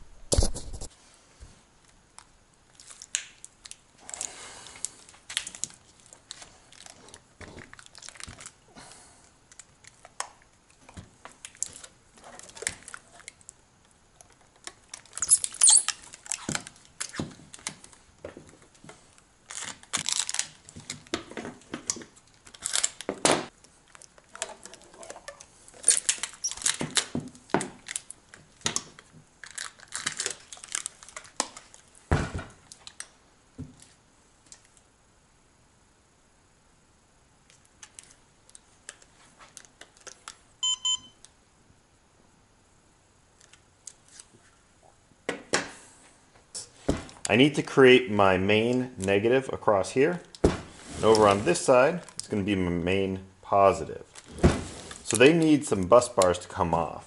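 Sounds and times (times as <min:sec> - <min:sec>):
tape crinkling: 0:01.8 - 0:08.6, 0:09.5 - 0:13.6, 0:14.2 - 0:33.2, 0:37.5 - 0:40.5, 0:43.3 - 0:44.5, 0:51.0 - 0:52.4, 0:54.0 - 0:56.4
tape tearing off roll: 0:14.9 - 0:17.8, 0:19.4 - 0:21.7, 0:22.4 - 0:23.5, 0:25.8 - 0:31.8.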